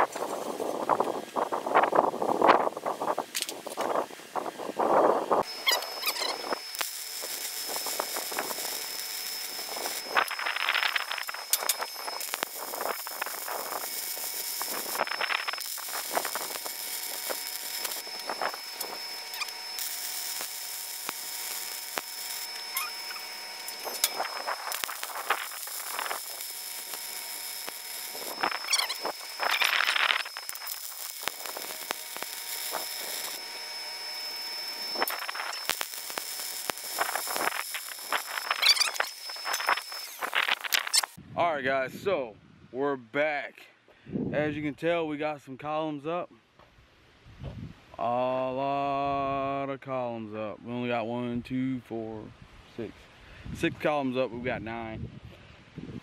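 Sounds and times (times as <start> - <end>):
welding arc crackling: 0.0 - 41.2.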